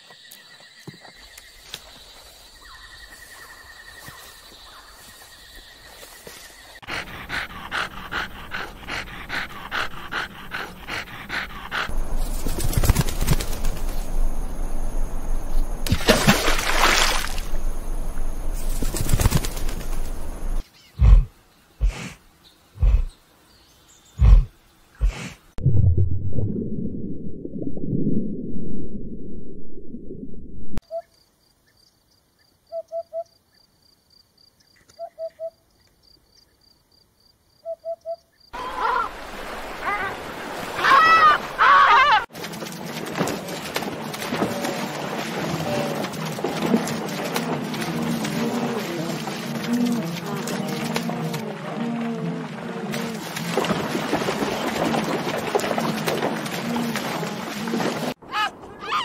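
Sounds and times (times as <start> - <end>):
dog panting rapidly: 6.8 - 11.9
low rumble: 25.6 - 30.8.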